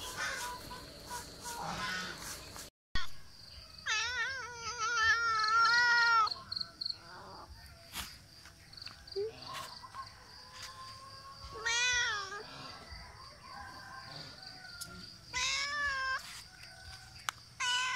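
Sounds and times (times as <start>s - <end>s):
cat meowing: 15.3s - 16.2s, 17.6s - 17.9s.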